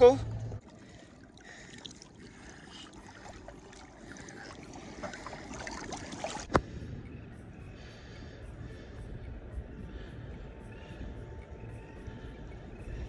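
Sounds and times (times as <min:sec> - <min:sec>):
water splashing and sloshing: 0:00.0 - 0:06.8.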